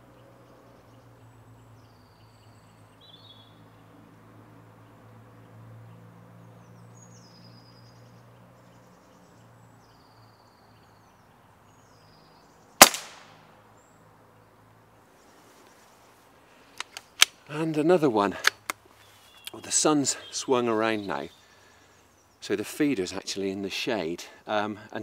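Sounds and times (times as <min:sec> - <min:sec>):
air rifle shot: 0:12.8 - 0:13.4.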